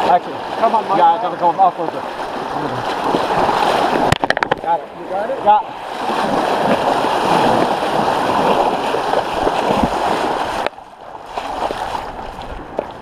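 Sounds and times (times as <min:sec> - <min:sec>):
floodwater rushing and splashing: 0:00.0 - 0:13.0
flowing water: 0:00.0 - 0:13.0.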